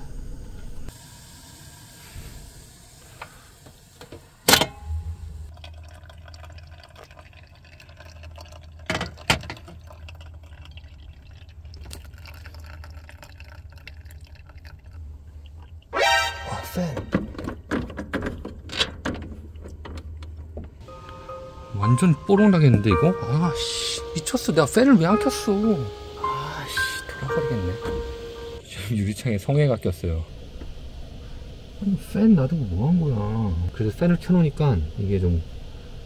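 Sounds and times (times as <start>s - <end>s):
hot water pouring: 5.5s - 16.9s, 20.8s - 28.6s
steady low hum: 20.2s - 36.0s.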